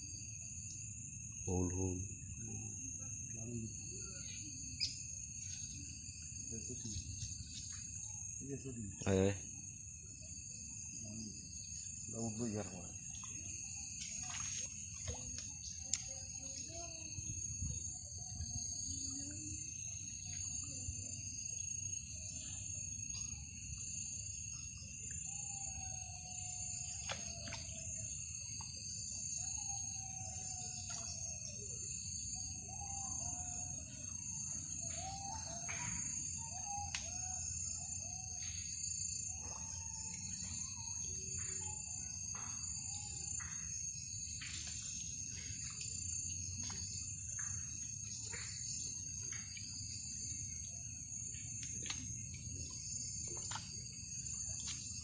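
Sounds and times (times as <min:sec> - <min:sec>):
crickets trilling: 0:00.0 - 0:55.0
faint gliding insect calls: 0:00.0 - 0:55.0
short insect clicks: 0:13.1 - 0:16.6, 0:36.8 - 0:37.2.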